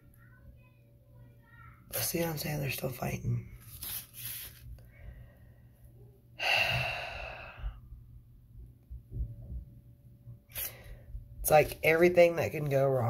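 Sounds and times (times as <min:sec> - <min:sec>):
woman sighing heavily: 0:06.4 - 0:07.8.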